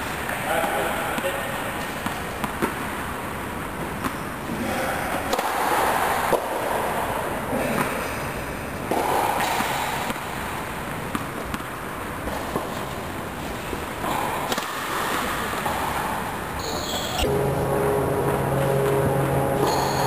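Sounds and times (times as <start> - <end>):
tennis ball bouncing: 0.6 - 3.0, 8.9 - 10.3, 11.0 - 12.9
racket hitting ball: 14.4 - 16.1, 17.2 - 20.0
steady held tones: 16.6 - 20.0.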